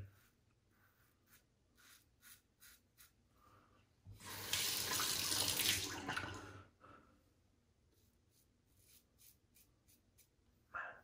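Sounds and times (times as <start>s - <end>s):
tap water running into sink: 4.2s - 6.4s.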